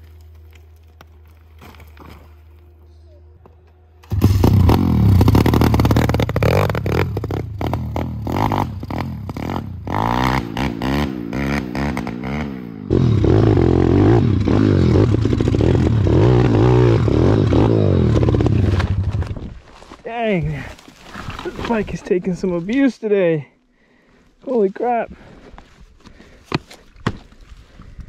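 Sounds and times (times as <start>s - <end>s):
motorbike engine revving: 4.0s - 19.3s.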